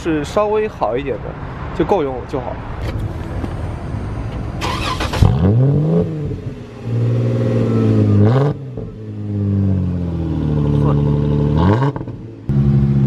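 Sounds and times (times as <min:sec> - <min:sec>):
rowdy engine exhaust revving: 0:04.6 - 0:13.0.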